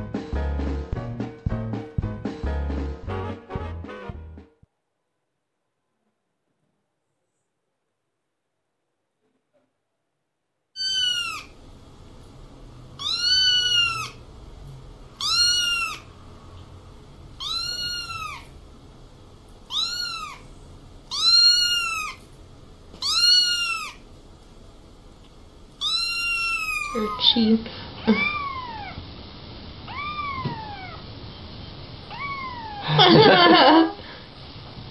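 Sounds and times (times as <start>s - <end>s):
kitten meowing: 10.8s - 11.6s, 13.0s - 14.2s, 15.2s - 16.1s, 17.4s - 18.5s, 19.7s - 20.5s, 21.1s - 22.2s, 23.0s - 24.0s, 25.8s - 27.4s, 28.0s - 29.0s, 29.9s - 31.0s, 32.1s - 33.0s.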